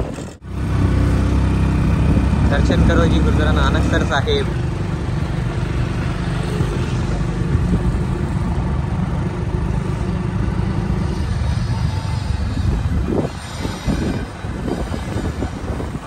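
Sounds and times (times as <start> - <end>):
tractor engine rumbling: 0.0 - 16.0.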